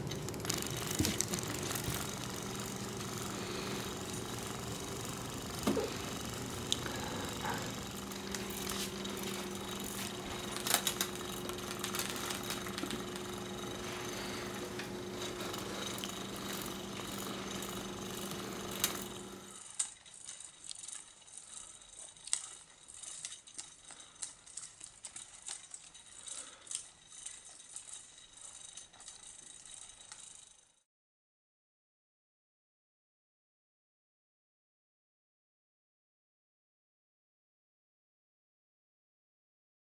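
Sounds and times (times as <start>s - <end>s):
toy rattling and clicking: 0.0s - 30.8s
toy motor buzzing: 0.0s - 30.9s.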